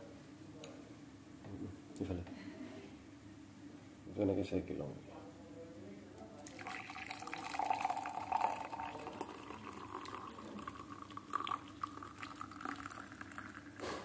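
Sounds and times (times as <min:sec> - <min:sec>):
liquid pouring into a glass: 0:06.4 - 0:13.8.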